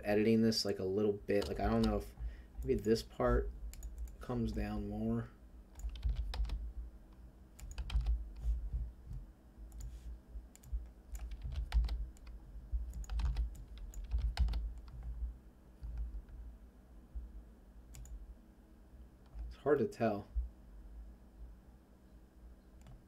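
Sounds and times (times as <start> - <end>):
computer keyboard keys clicking: 1.4 - 2.0, 3.7 - 4.2, 5.8 - 6.6, 7.6 - 8.5, 10.6 - 15.1, 17.9 - 18.2, 22.8 - 23.0.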